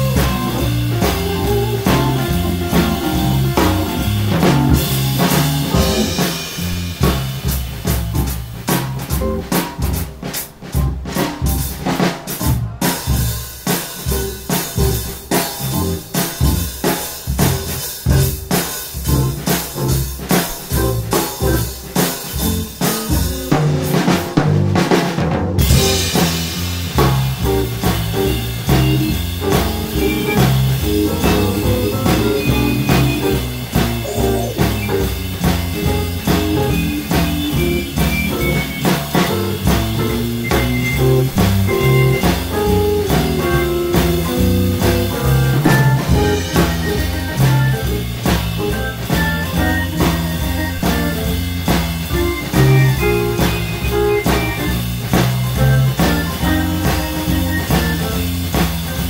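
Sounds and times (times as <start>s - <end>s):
moving bass line: 0.0s - 8.3s, 19.0s - 21.7s, 26.8s - 59.0s
drum hits: 0.0s - 59.0s
live blues band playing: 0.0s - 59.0s.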